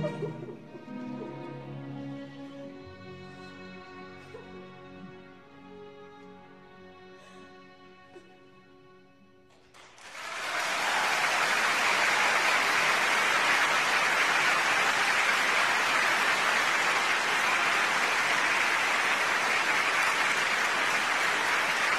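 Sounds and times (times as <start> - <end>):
audience applauding: 9.5 - 21.9.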